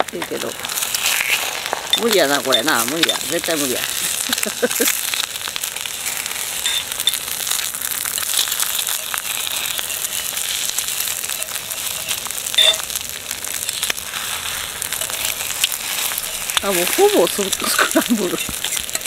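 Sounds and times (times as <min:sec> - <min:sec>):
egg sizzling in a hot pan: 0:00.0 - 0:19.0
metal fork scraping a pan: 0:13.7 - 0:19.0.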